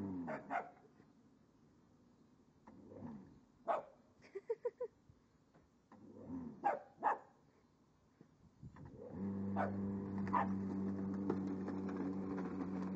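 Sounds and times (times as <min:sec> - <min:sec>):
puppy barking: 0:00.3 - 0:00.8, 0:03.7 - 0:04.0, 0:06.6 - 0:07.3, 0:09.6 - 0:10.6
electric lawn mower humming: 0:09.0 - 0:12.9.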